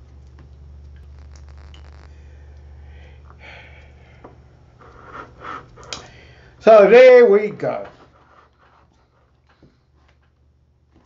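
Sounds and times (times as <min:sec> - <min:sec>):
low hum: 0:00.0 - 0:06.6
soft breaths: 0:02.0 - 0:06.6.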